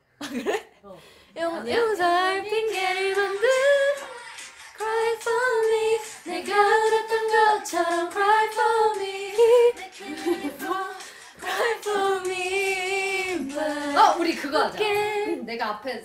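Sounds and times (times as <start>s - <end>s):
woman singing a cappella: 1.3s - 4.2s, 4.8s - 15.6s.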